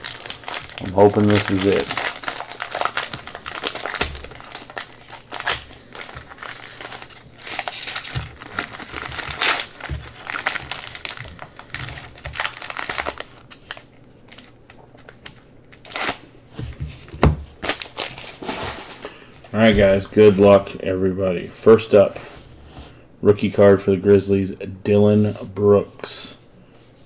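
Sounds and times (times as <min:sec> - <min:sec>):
foil wrapper crinkling: 0:00.0 - 0:16.2, 0:17.6 - 0:19.1.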